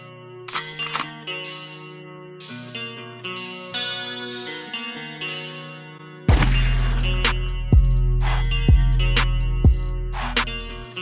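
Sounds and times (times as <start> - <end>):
sustained guitar-like notes: 0.0 - 11.0
sharp hit: 6.3 - 7.5.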